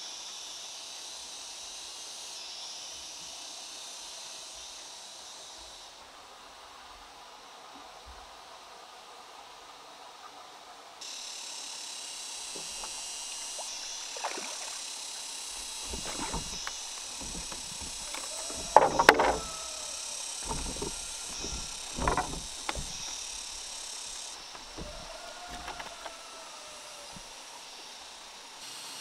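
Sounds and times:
water sloshing against a raft: 12.5s - 27.6s.

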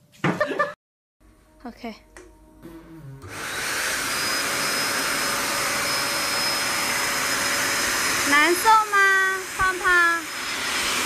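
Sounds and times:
electric blower motor whining: 2.6s - 11.0s.

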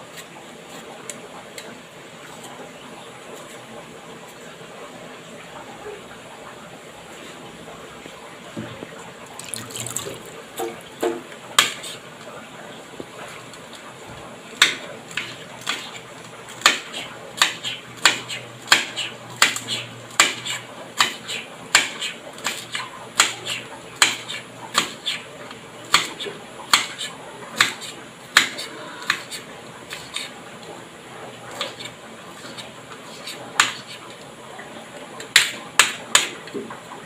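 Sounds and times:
knife chopping vegetables on board: 10.6s - 12.0s, 14.6s - 25.2s, 25.9s - 30.3s, 31.5s - 34.0s, 35.3s - 36.6s.

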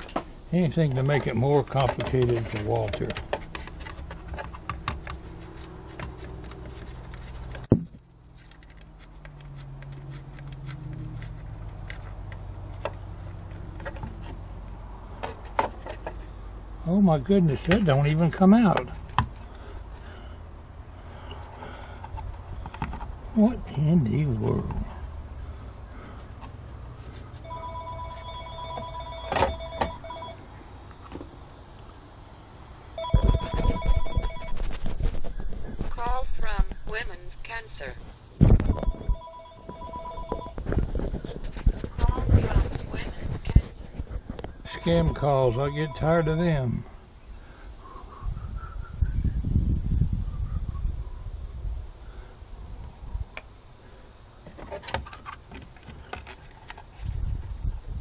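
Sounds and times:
electronic two-tone phone ring: 27.4s - 30.4s, 33.0s - 34.7s, 38.7s - 40.6s, 44.7s - 46.5s.

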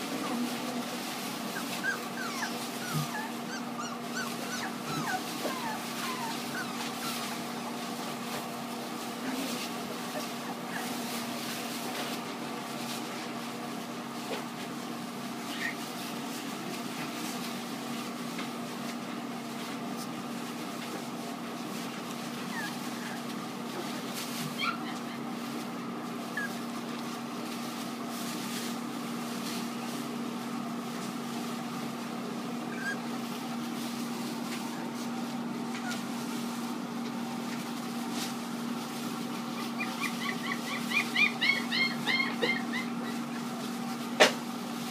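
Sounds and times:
puppies rustling through paper: 0.0s - 44.9s
puppies squeaking: 1.5s - 7.5s, 15.5s - 15.8s, 22.5s - 23.2s, 24.5s - 25.3s, 26.3s - 26.7s, 32.6s - 33.2s, 39.5s - 43.5s.

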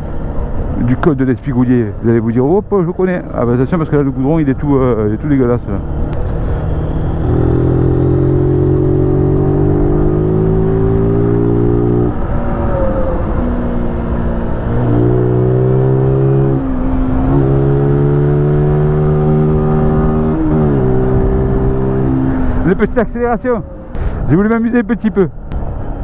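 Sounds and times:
motorcycle engine accelerating: 5.6s - 22.9s.

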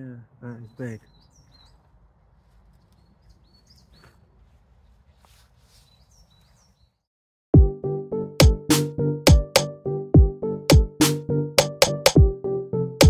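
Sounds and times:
faint birds chirping: 0.0s - 7.1s
soft rustles: 1.5s - 6.9s
loud music with sharp drum beat: 8.4s - 12.3s.

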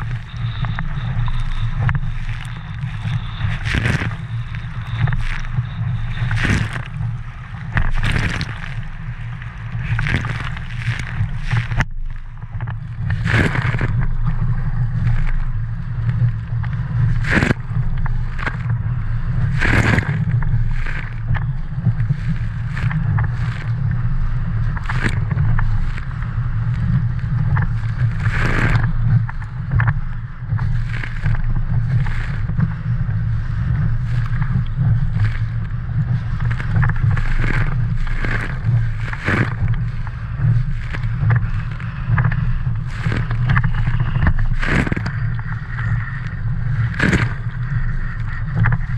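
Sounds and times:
water splashing against hull: 0.0s - 48.9s
wind rumble on microphone: 0.0s - 48.9s.

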